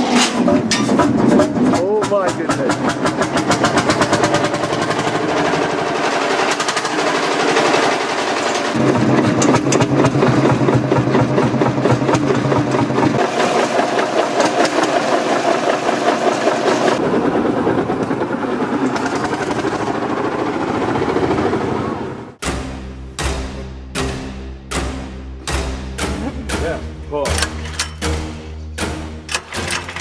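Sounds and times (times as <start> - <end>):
tractor diesel engine thumping: 0.4 - 5.4.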